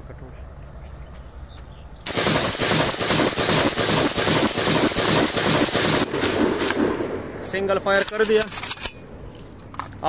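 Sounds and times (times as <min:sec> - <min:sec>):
rifle firing rapid shots: 0:02.1 - 0:07.2.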